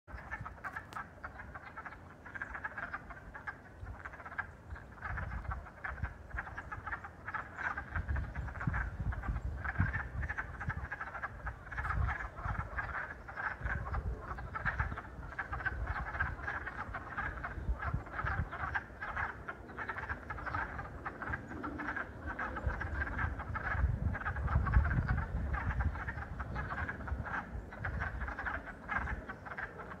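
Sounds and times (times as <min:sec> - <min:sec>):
frogs clucking in chorus: 0:00.1 - 0:30.0.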